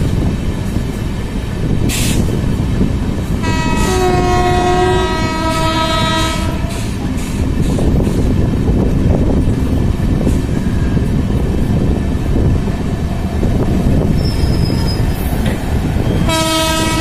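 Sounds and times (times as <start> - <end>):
train wheels rumbling on rail: 0.0 - 17.0
two-note locomotive horn: 3.4 - 7.0, 16.1 - 17.0.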